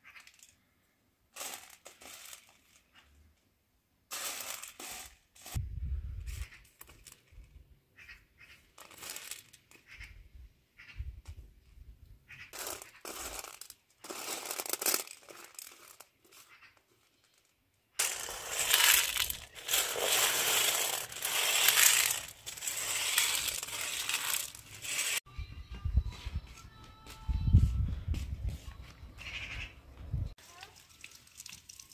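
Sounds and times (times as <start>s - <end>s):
dried beans rattling on metal: 0.0s - 0.5s, 1.3s - 3.0s, 4.1s - 5.6s, 8.8s - 9.8s, 12.5s - 25.2s.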